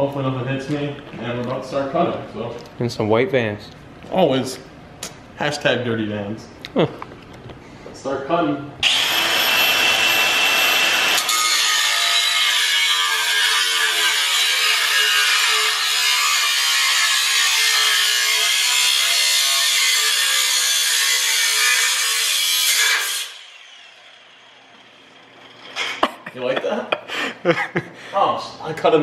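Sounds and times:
reciprocating saw cutting metal pipe: 0:08.8 - 0:26.0.

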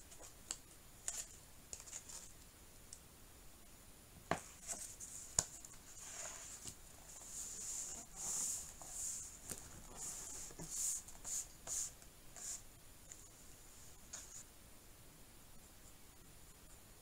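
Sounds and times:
book tapping on desk: 0:04.3 - 0:04.5
palms rubbing paper pages: 0:04.4 - 0:13.4.

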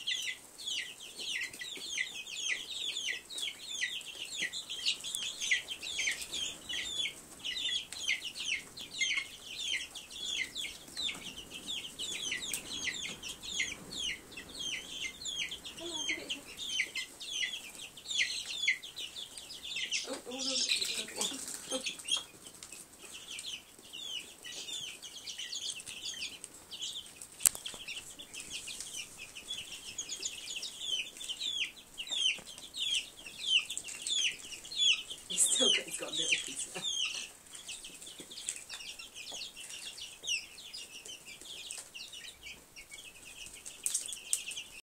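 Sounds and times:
chicks and ducklings peeping: 0:00.0 - 0:44.8.

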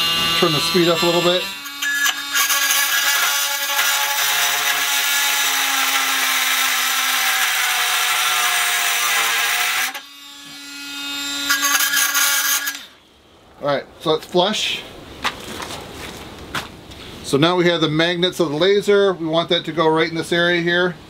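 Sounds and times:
multi-tool cutting metal: 0:00.0 - 0:13.0.

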